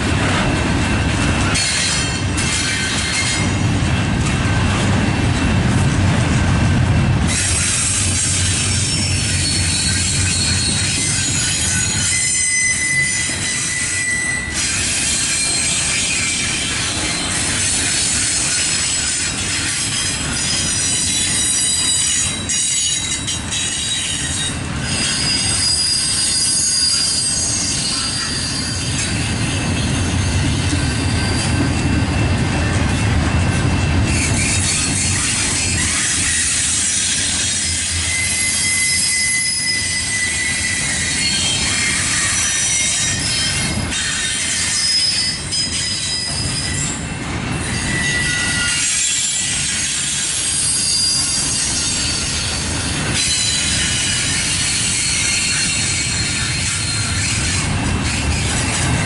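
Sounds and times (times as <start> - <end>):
steel wheels rumbling on rails: 0.0 - 59.0
high-pitched wheel squeal: 7.3 - 29.2, 34.1 - 47.0, 47.6 - 59.0.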